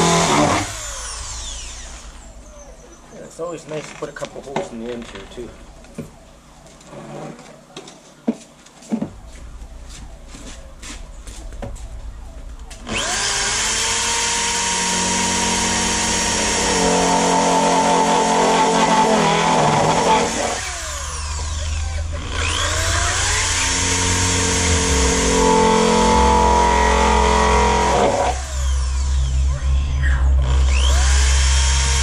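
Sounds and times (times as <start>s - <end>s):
electric drill boring plastic pipe: 0.0s - 2.2s, 12.8s - 32.0s.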